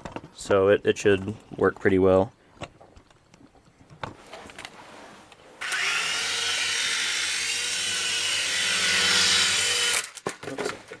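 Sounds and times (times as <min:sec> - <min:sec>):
toy helicopter motor whine: 0:05.6 - 0:10.2.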